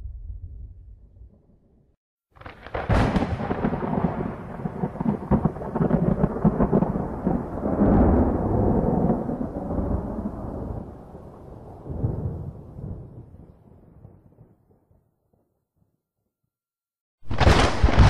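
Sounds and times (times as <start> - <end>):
thunderclap: 2.4 - 14.4, 17.2 - 18.0.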